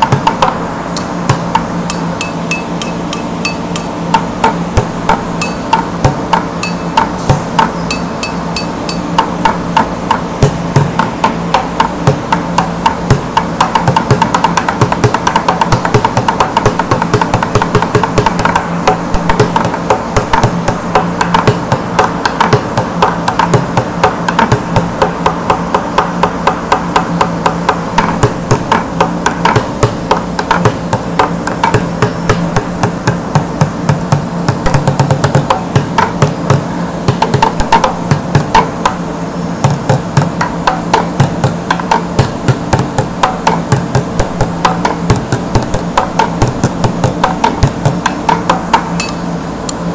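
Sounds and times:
plastic bucket drumming: 28.0 - 38.9, 39.6 - 48.9.

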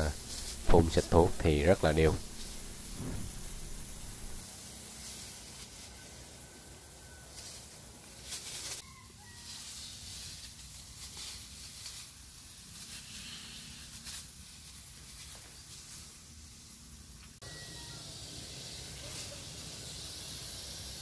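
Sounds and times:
loud burst of noise: 0.0 - 4.4
spray mist hissing: 0.0 - 5.9, 18.0 - 21.0.

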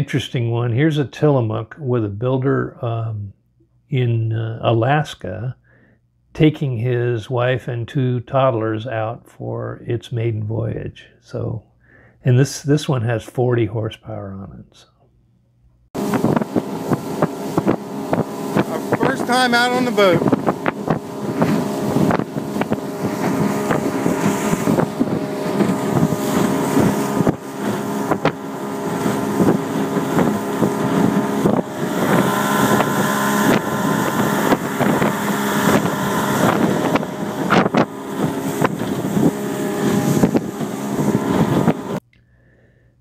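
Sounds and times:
outboard motor running: 16.0 - 42.0
wind on microphone: 16.0 - 42.0.

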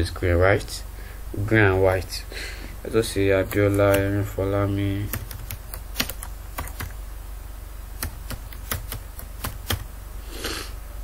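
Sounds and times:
steady low hum: 0.0 - 11.0
keyboard keys tapping: 3.4 - 4.2, 5.1 - 7.0, 8.0 - 9.9.

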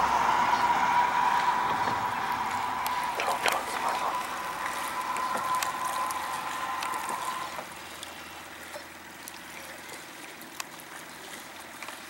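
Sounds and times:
steady high tone: 0.0 - 7.8
river water lapping and trickling: 0.0 - 12.0.

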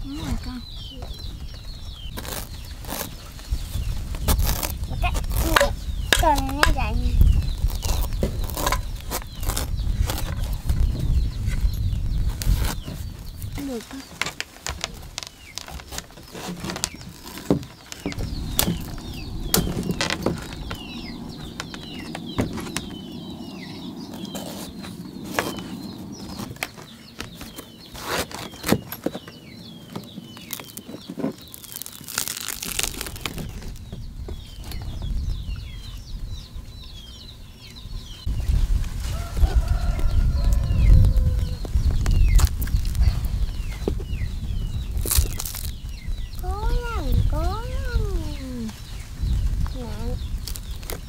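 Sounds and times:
low rumbling noise: 17.0 - 27.9, 31.6 - 51.0
chickens peeping and clucking: 33.8 - 51.0.

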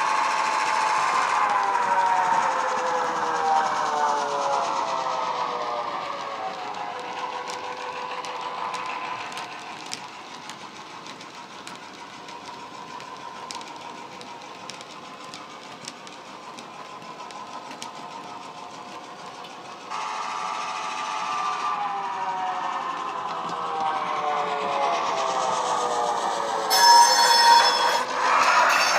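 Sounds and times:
wagons rolling with wheel clicks: 6.5 - 19.6.

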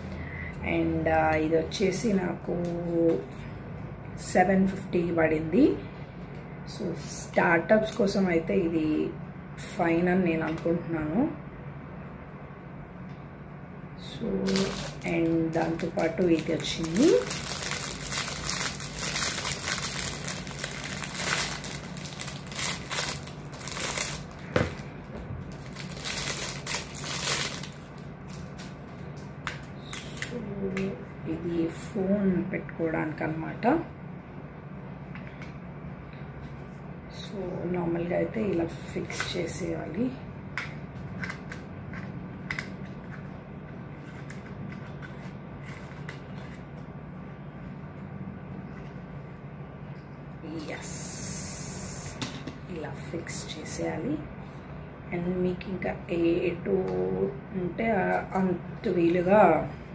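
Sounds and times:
steady low hum: 0.0 - 59.9
plastic bag crinkling: 14.4 - 24.9, 25.5 - 28.8.

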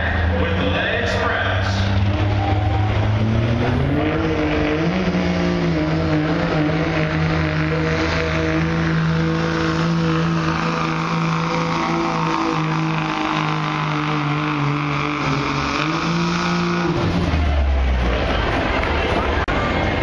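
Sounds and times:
diesel truck engine at high revs: 0.0 - 20.0.

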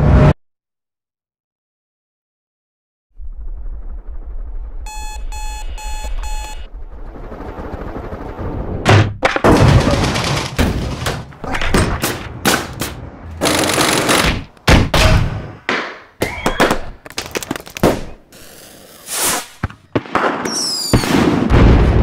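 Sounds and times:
alarm clock beeping: 4.9 - 6.7
loud bangs and clatter: 8.8 - 15.4.

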